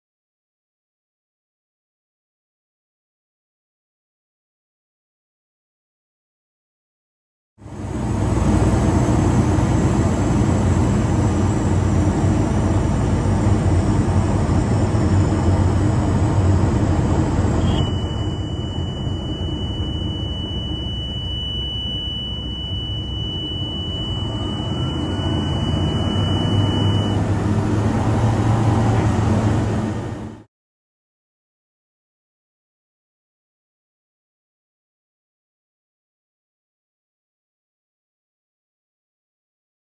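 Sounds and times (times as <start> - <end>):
aircraft engine and propeller drone: 7.6 - 30.5
high-pitched warning tone: 17.4 - 29.2.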